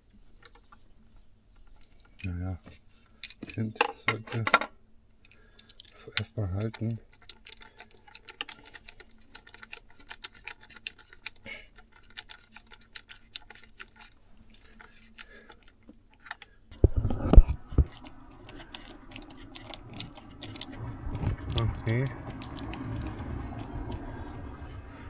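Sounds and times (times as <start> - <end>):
small parts and tools clicking: 3.0 - 24.5
low handling rumble: 16.8 - 25.0.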